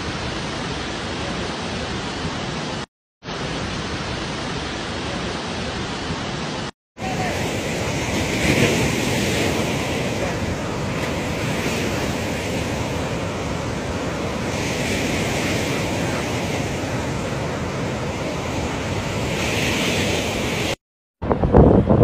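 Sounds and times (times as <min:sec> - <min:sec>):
water rushing: 0:00.0 - 0:20.8
wind blowing on microphone: 0:07.0 - 0:22.0.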